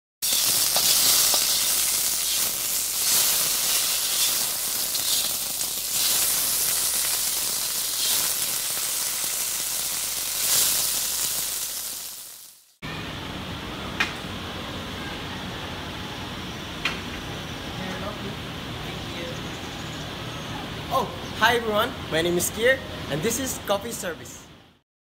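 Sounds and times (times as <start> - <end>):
steady high hiss: 0.2 - 18.8.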